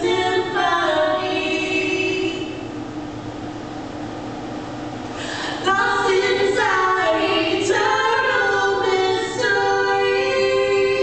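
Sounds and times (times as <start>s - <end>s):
women singing a cappella: 0.0s - 2.7s, 5.4s - 11.0s.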